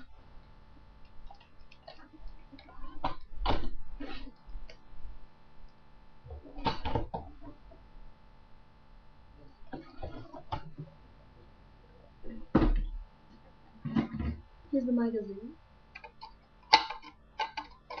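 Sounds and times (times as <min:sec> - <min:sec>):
plastic parts clicking: 0:16.0 - 0:18.0.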